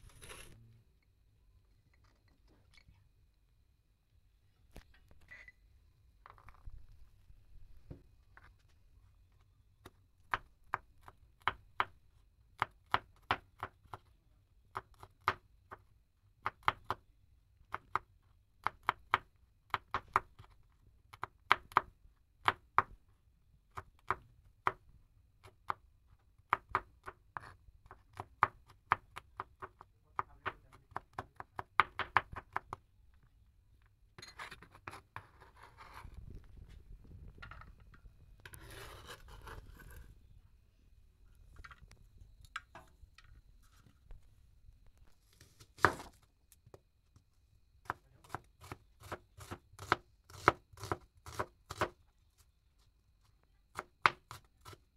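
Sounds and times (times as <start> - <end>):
knife blade scraping board: 0.0 - 0.6, 38.5 - 40.1.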